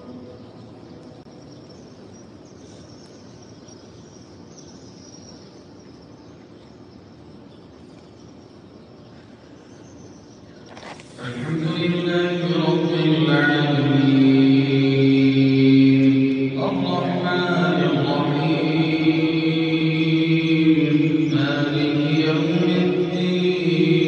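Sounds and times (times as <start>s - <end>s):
courtyard ambient hiss: 0.0s - 24.0s
loud chanted voice: 11.2s - 24.0s.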